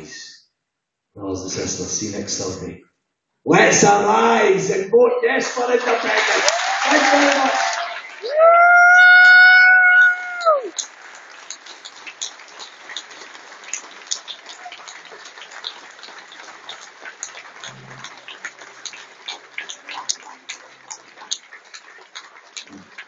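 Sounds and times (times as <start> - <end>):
audience applauding: 5.4 - 23.0.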